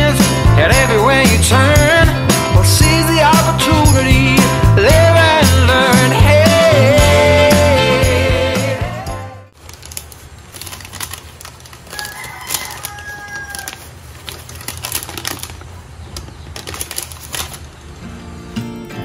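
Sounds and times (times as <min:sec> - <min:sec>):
paper wrapper crinkling: 0:09.6 - 0:17.8.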